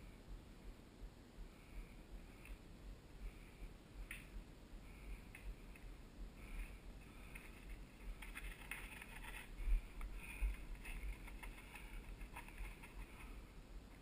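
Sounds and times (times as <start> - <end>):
bike frame rattling: 7.3 - 13.2.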